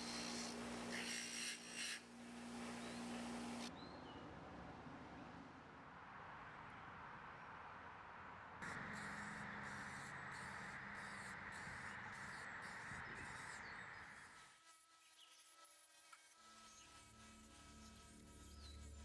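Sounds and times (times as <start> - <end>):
spray paint can hissing: 8.6 - 13.6.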